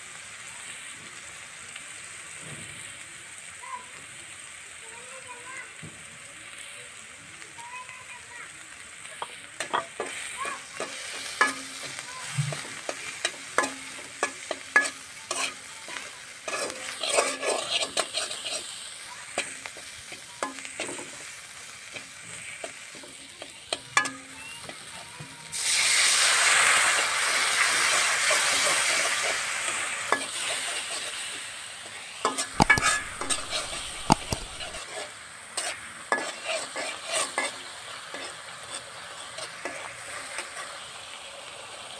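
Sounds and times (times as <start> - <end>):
loud sizzle of water: 0.0 - 41.9
paste frying in oil: 0.0 - 41.9
metal spatula scraping a pan: 9.0 - 25.6, 26.4 - 40.9.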